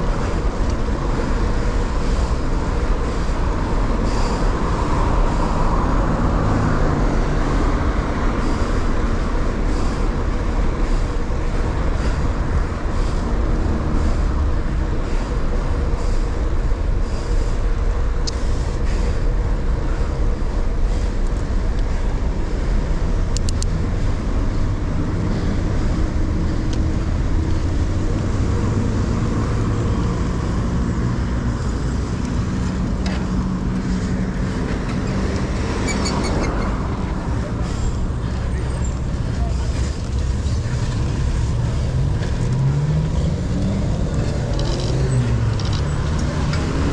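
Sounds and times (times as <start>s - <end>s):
motor traffic: 0.0s - 46.9s
wind and tyre rumble: 0.0s - 46.9s.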